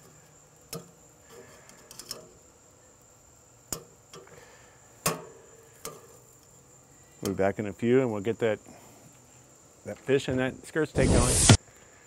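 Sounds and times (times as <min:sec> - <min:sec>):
tongs clicking on grill grate: 0:00.0 - 0:02.4, 0:03.7 - 0:04.4, 0:05.0 - 0:06.6
insect trill: 0:00.0 - 0:10.9.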